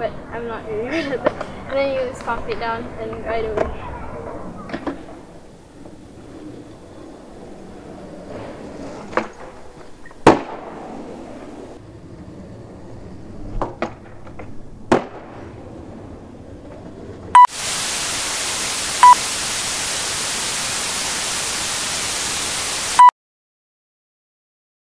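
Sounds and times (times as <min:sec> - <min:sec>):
skateboard clacks on concrete: 0:13.4 - 0:15.4
television static hiss: 0:17.4 - 0:23.1
loud short beeps: 0:18.4 - 0:19.3, 0:21.2 - 0:23.1.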